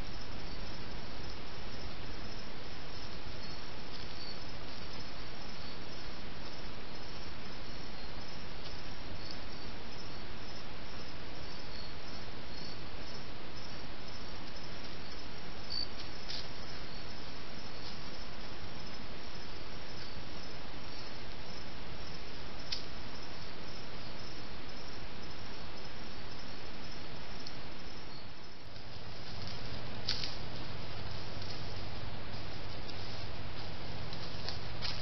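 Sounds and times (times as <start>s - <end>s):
insects chirping: 0.0s - 35.0s
microphone hiss: 0.0s - 35.0s
faint clicks: 22.7s - 22.9s.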